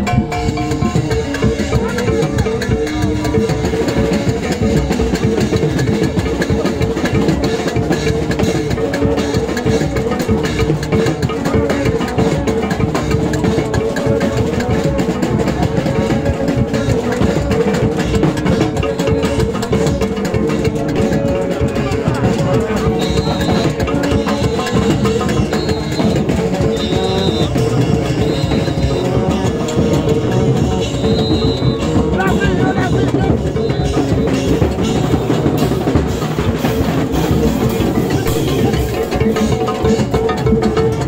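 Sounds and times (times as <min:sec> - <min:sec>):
hand drums and percussion: 0:00.0 - 0:41.0
horns blowing short notes: 0:13.1 - 0:39.7.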